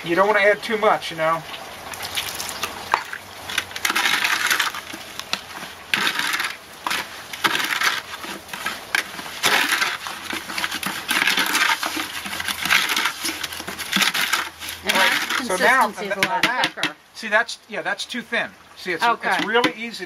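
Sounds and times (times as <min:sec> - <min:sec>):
trowel scraping wet cement mix: 0:02.9 - 0:16.9.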